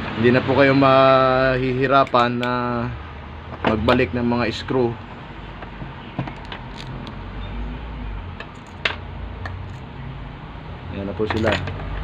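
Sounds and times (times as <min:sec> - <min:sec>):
screws clinking on screwdriver: 0:11.3 - 0:11.8.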